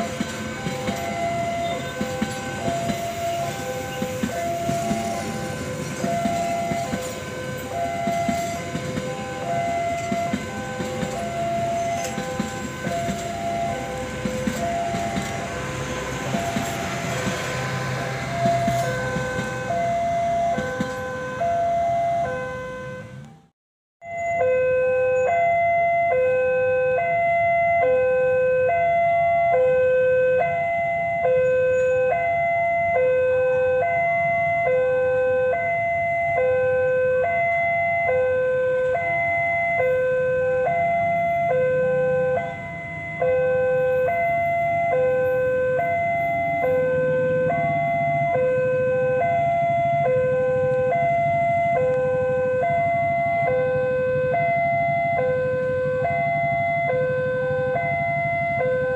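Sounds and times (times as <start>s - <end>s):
diesel locomotive rumble: 0.0s - 58.9s
level crossing two-tone alarm: 0.0s - 58.9s.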